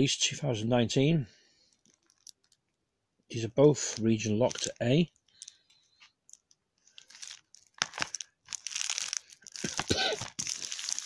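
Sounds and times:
plastic shrink wrap crinkling: 1.7 - 2.6, 3.8 - 11.0.

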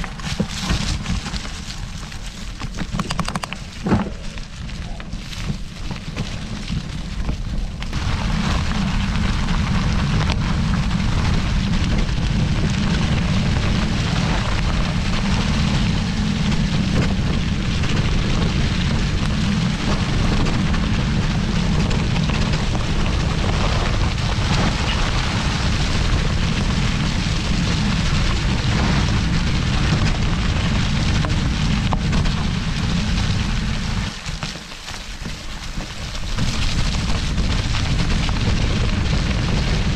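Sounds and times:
bike tyres crackling over dry leaves: 0.0 - 39.9
wind rumbling over microphone: 0.0 - 39.9.

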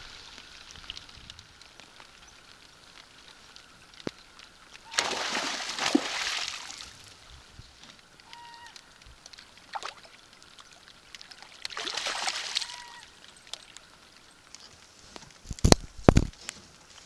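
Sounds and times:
fish thrashing and splashing: 4.9 - 7.0, 9.3 - 13.8.

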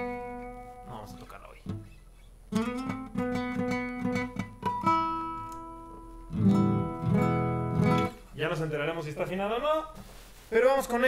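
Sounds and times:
acoustic guitar strumming: 0.0 - 8.3.

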